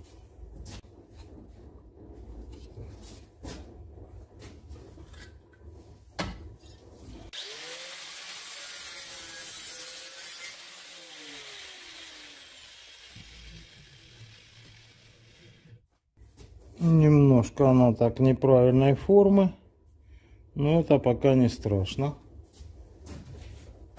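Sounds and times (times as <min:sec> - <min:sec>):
angle grinder cutting metal tube: 0:07.3 - 0:15.8.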